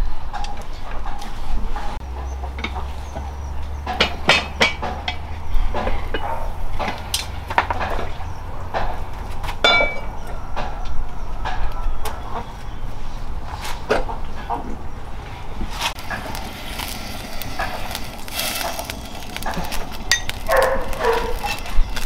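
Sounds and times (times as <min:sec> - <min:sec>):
irregular knocks and clinks: 0:02.1 - 0:11.6
ringing clink: 0:09.6 - 0:10.1.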